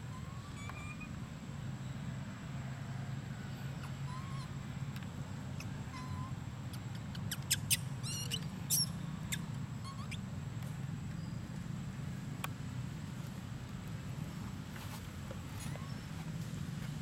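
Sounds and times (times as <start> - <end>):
young monkey squeaking: 0.1 - 1.2, 3.8 - 4.6, 5.5 - 10.2, 15.5 - 16.2.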